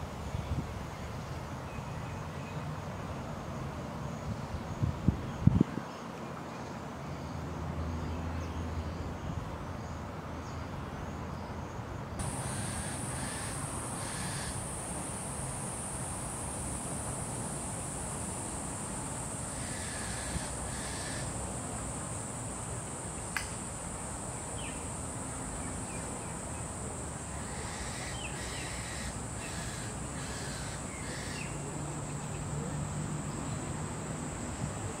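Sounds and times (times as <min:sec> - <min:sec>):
high-pitched insect buzz: 0:12.2 - 0:21.7.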